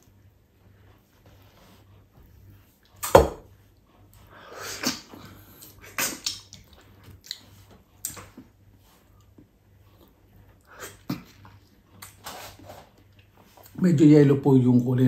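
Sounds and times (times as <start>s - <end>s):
lips smacking: 4.6s - 8.3s.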